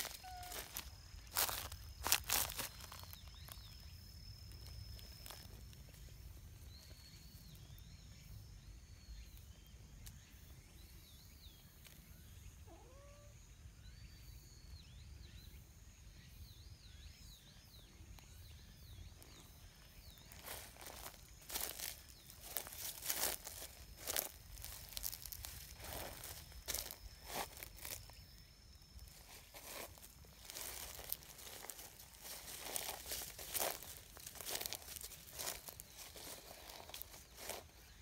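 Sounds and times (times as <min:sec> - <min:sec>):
faint high chirping: 0:00.0 - 0:38.0
cat meowing: 0:00.1 - 0:00.7, 0:12.7 - 0:13.4.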